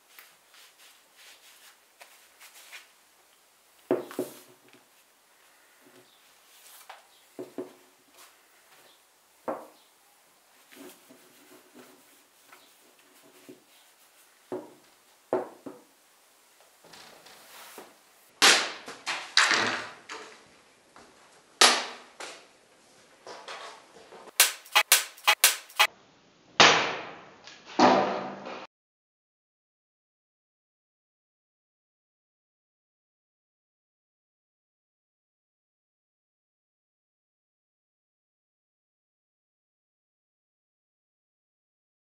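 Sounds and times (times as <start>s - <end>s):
sabre cutting bamboo stakes: 24.3s - 25.9s.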